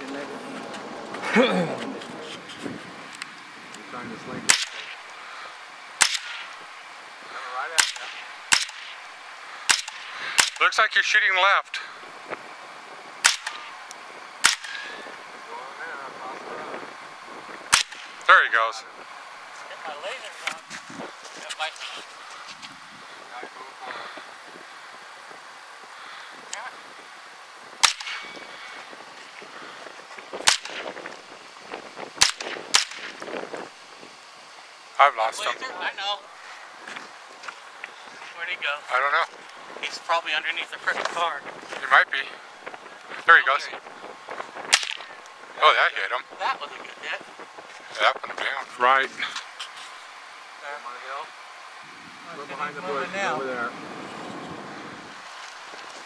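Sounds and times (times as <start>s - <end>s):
rifle shots: 4.5s - 5.0s, 6.0s - 6.6s, 7.7s - 9.0s, 9.6s - 10.7s, 13.2s - 13.8s, 14.4s - 15.0s, 17.7s - 18.2s, 27.8s - 28.4s, 30.4s - 30.9s, 32.2s - 33.2s, 44.7s - 45.0s.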